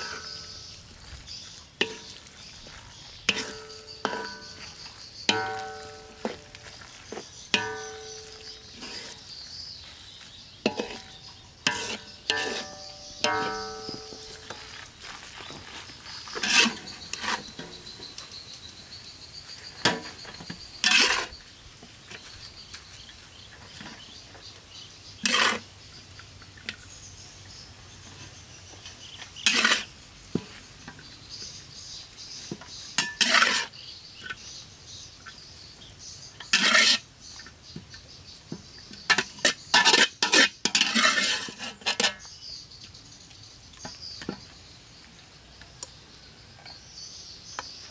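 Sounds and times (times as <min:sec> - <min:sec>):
metal spatula scraping steel wok: 0:00.0 - 0:00.8, 0:01.8 - 0:14.7, 0:16.3 - 0:17.9, 0:19.8 - 0:21.4, 0:25.1 - 0:25.7, 0:29.0 - 0:30.0, 0:33.0 - 0:34.4, 0:36.3 - 0:37.1, 0:39.1 - 0:42.3.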